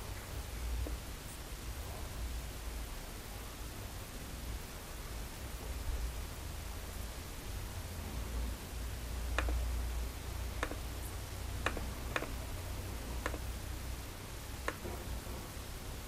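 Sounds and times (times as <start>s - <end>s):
low hum and hiss: 0.0s - 16.0s
computer mouse clicks: 9.4s - 9.6s, 10.6s - 10.9s, 11.6s - 12.4s, 13.2s - 13.5s, 14.6s - 14.9s.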